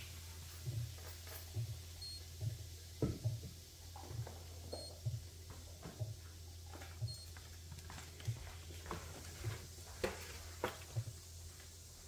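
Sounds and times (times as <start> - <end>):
soft low thumps: 0.6 - 6.2.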